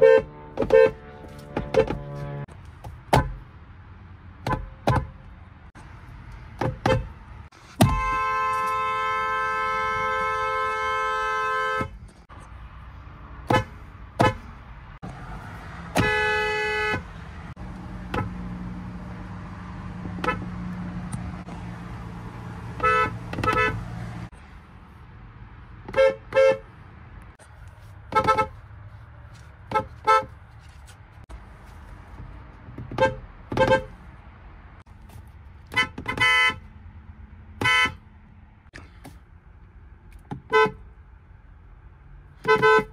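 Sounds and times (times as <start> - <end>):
car horns honking: 0.0 - 2.5, 4.4 - 5.3, 6.6 - 12.3, 13.4 - 14.6, 15.8 - 19.0, 20.0 - 21.5, 22.6 - 24.4, 25.8 - 26.8, 28.0 - 28.7, 29.6 - 30.4, 32.8 - 34.1, 35.6 - 36.8, 37.5 - 38.1, 40.3 - 41.0, 42.3 - 42.9.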